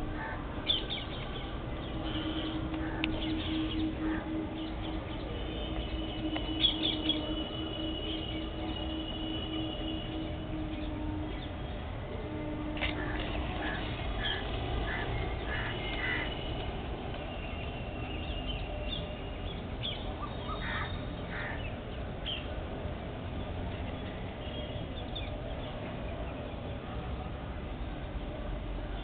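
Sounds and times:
parakeets screeching: 13.0 - 16.4.

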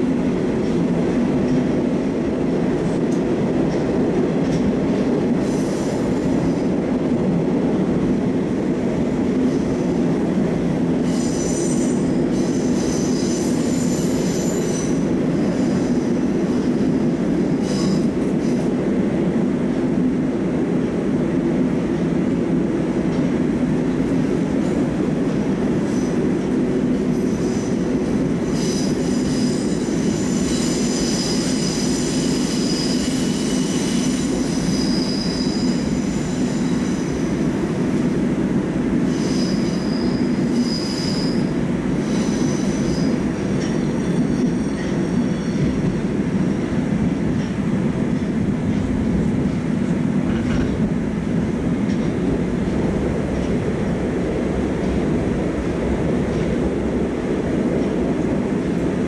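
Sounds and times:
train wheels rumbling on rail: 0.0 - 59.0
high-pitched wheel squeal: 28.5 - 37.3, 39.1 - 45.8.

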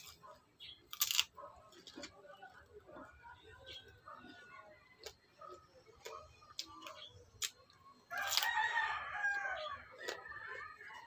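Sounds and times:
cucumber being chewed: 0.0 - 3.2, 3.8 - 11.0
rooster crowing: 8.1 - 9.9.

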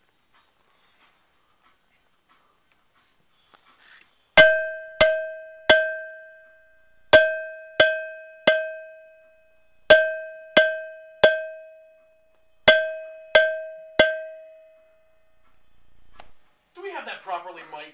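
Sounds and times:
cowbell struck with drumstick: 4.4 - 15.2.

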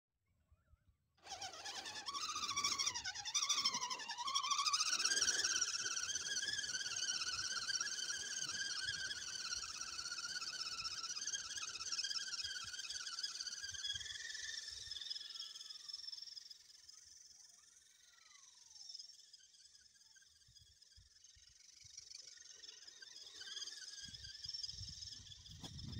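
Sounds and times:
electric motor and gears whining: 1.2 - 16.6.

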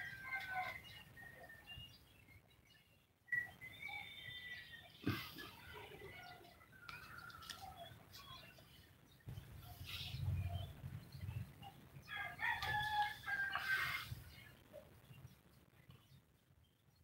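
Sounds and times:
rooster crowing: 12.1 - 14.1.

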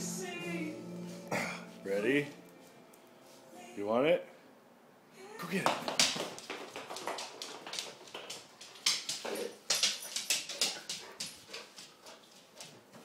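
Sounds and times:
dog claws skidding on floor: 5.6 - 13.0.

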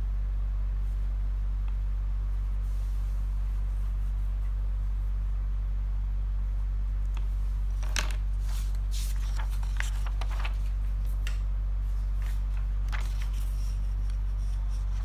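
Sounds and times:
paper rustling: 7.1 - 15.0
low hum: 8.7 - 15.0.

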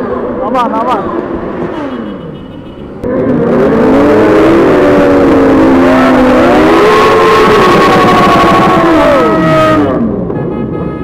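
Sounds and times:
motorcycle engine revving hard: 3.0 - 10.0.

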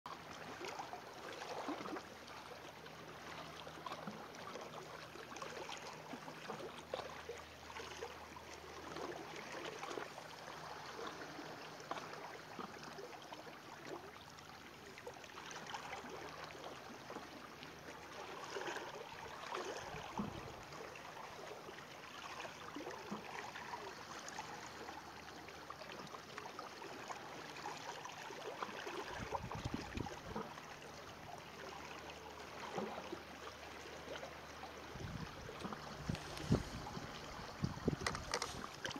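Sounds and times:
water gurgling among rocks: 34.8 - 38.9.

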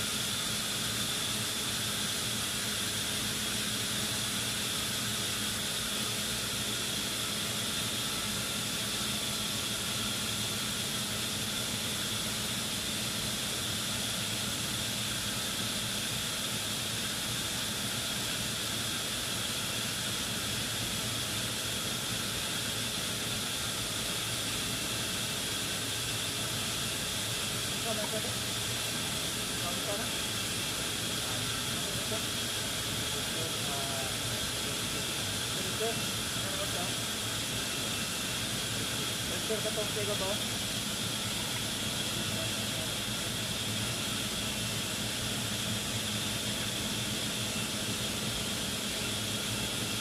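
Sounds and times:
machinery hiss with hum and whine: 0.0 - 50.0.

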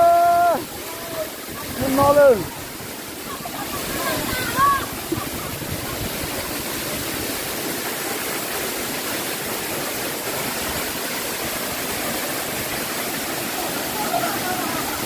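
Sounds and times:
waterfall pouring onto rock: 0.0 - 15.0.

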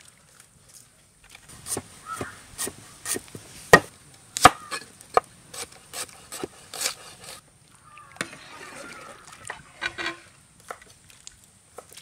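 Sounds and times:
chopping strikes on wood: 1.7 - 5.3.

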